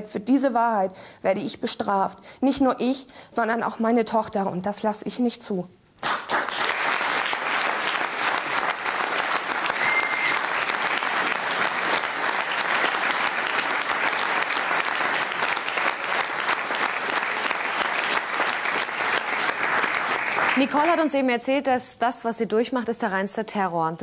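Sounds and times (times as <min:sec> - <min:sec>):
audience applauding: 0:06.0 - 0:21.2.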